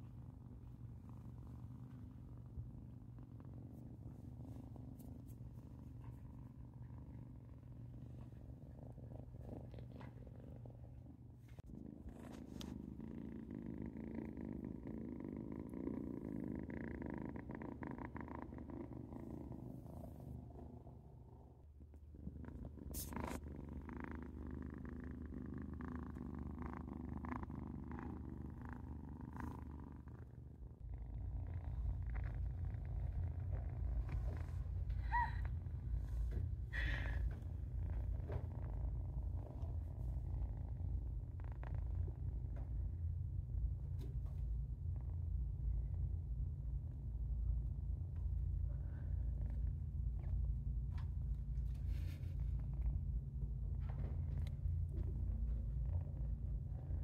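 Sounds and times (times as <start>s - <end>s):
kitten purring: 0.0s - 57.0s.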